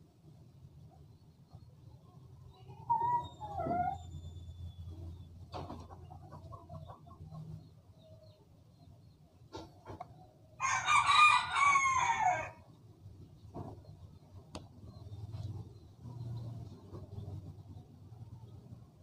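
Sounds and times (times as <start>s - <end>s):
rooster crowing: 10.6s - 12.6s.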